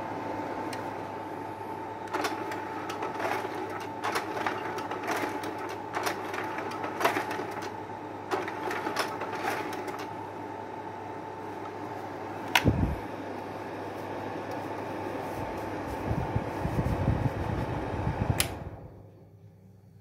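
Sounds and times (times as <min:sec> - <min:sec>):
projector cooling fan humming: 0:00.0 - 0:20.0
projector switch click: 0:12.5 - 0:12.8, 0:18.4 - 0:18.6.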